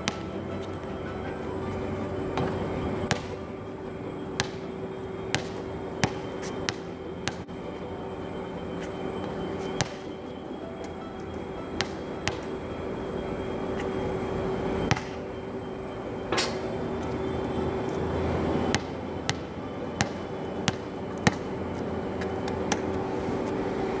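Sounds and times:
basketball bouncing on hard court: 0.0s - 0.3s, 2.4s - 3.4s, 4.4s - 4.7s, 5.3s - 7.4s, 9.8s - 10.1s, 11.8s - 12.6s, 14.9s - 15.2s, 18.7s - 21.4s
steady low hum: 0.0s - 24.0s.

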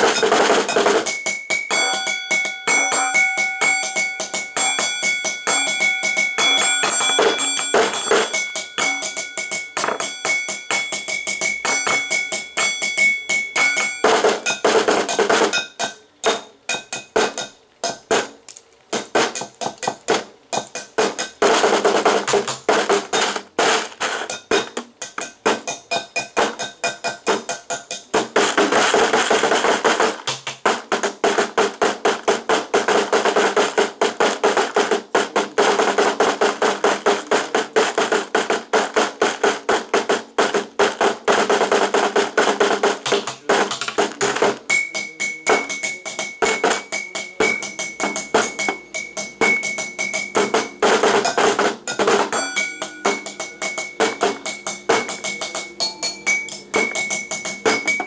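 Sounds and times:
drumming on plastic and metal bowl: 0.0s - 18.4s, 19.0s - 58.0s
high ringing tone: 1.1s - 14.2s, 52.3s - 58.0s.

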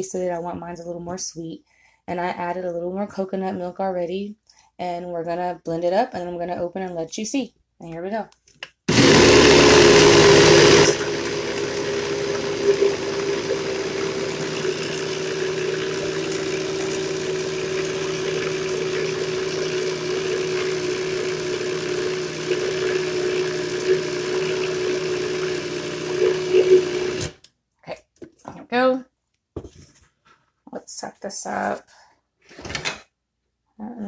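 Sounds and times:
blender motor running: 8.9s - 27.4s.

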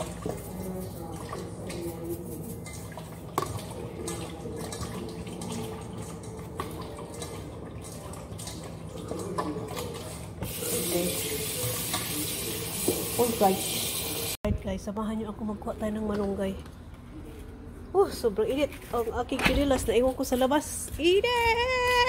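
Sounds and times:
chicken rubbed with salt: 0.0s - 2.9s
tap water running into sink: 3.4s - 14.4s.

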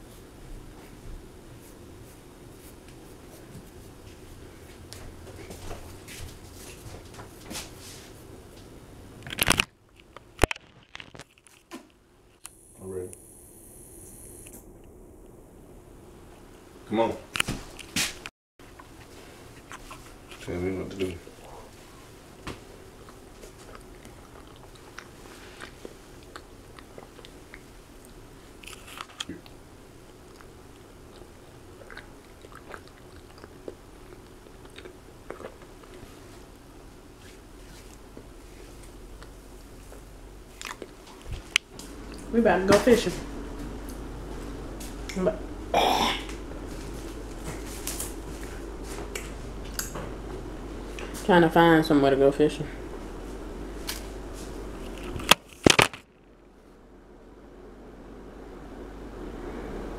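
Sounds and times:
low room hum: 0.0s - 59.9s
person chewing: 18.7s - 20.4s, 22.9s - 36.6s, 37.6s - 42.3s.

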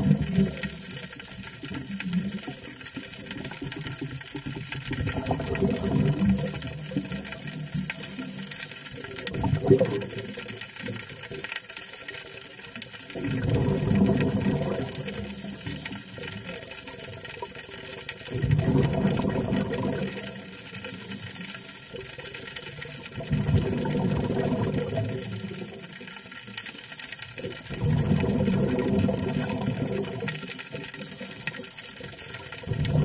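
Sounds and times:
diver exhaling bubbles underwater: 0.0s - 0.9s, 4.9s - 7.0s, 9.3s - 10.4s, 13.2s - 15.5s, 18.3s - 20.4s, 23.2s - 25.6s, 27.7s - 30.5s, 32.6s - 33.0s
crackling hiss of water: 0.0s - 33.0s.

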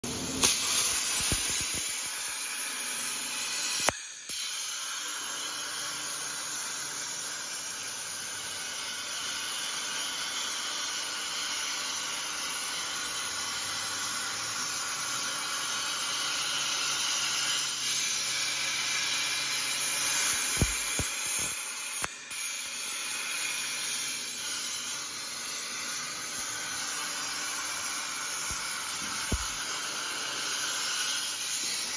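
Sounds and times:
plasma arc hissing: 0.1s - 31.9s
sharp click: 0.4s - 2.2s.

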